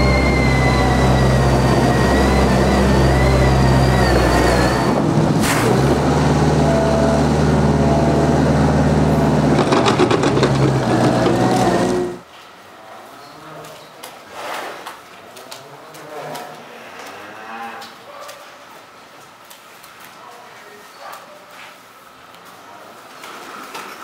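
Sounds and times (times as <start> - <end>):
thin high whine: 0.0 - 5.0
diesel engine running: 0.0 - 12.2
engine drone: 0.0 - 12.2.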